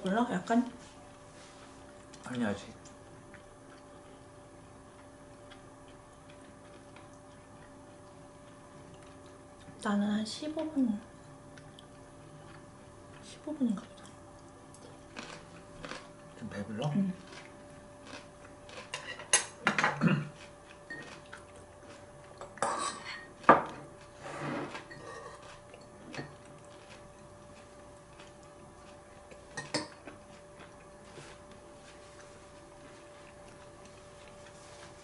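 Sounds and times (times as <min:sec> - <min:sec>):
faint steady hum: 0:00.0 - 0:35.0
utensils clinking against dishes: 0:18.8 - 0:20.1, 0:22.4 - 0:23.8, 0:24.6 - 0:26.4, 0:29.5 - 0:30.0.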